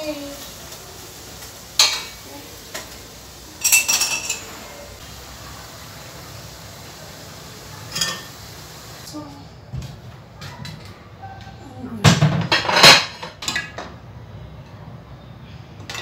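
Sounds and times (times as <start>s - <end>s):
metal utensil clinking on pan: 3.6s - 4.5s, 7.9s - 8.4s.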